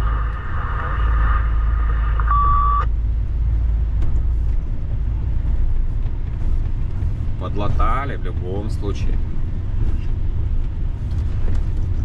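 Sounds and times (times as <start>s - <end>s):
truck engine and road drone: 0.0s - 12.0s
short electronic beep: 2.2s - 2.9s.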